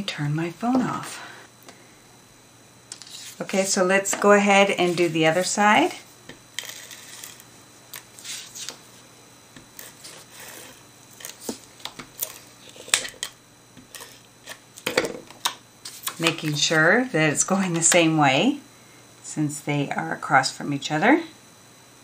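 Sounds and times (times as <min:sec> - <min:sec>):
tape runner rasping on paper: 0:06.6 - 0:07.4, 0:08.0 - 0:08.8, 0:09.7 - 0:13.2.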